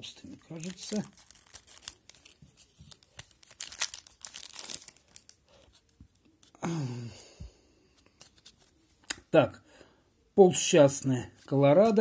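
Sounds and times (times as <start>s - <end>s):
foil wrapper crinkling: 0.4s - 5.7s
person humming: 6.6s - 7.4s.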